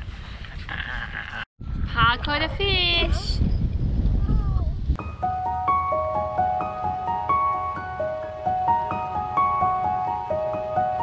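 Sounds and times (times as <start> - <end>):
gentle melody over light beat: 5.0 - 11.0.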